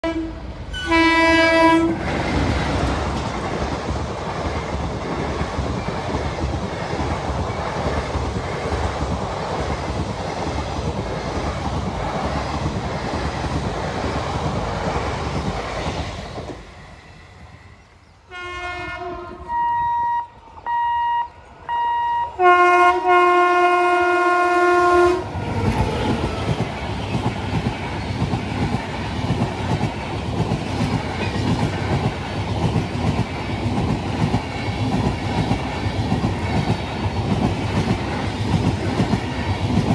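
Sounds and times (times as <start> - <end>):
locomotive air horn blasts: 0.0 - 2.0, 18.3 - 26.2
train wheels clattering on rails: 1.9 - 17.0, 25.4 - 39.9.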